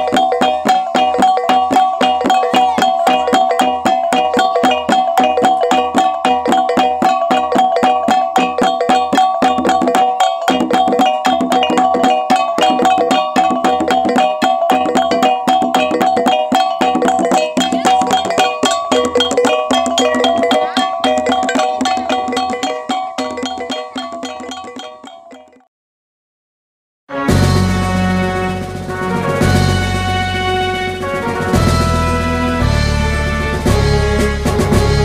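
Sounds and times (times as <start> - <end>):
hand gongs struck in interlocking rhythm: 0.0 - 25.6.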